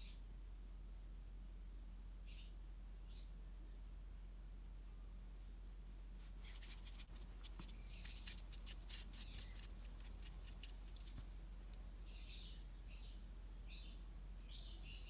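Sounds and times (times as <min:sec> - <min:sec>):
bird chirping: 0:02.2 - 0:03.4, 0:06.5 - 0:11.2, 0:12.0 - 0:15.0
hands rubbing clay: 0:06.3 - 0:11.8.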